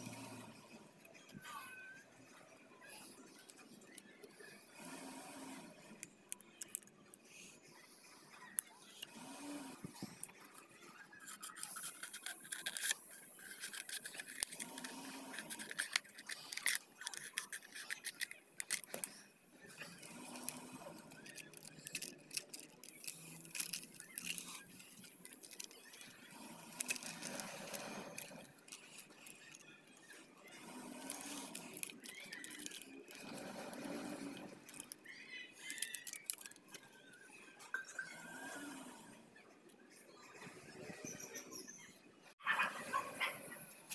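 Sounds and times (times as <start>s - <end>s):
plastic bottles crinkling: 11.2s - 29.7s, 30.7s - 36.8s.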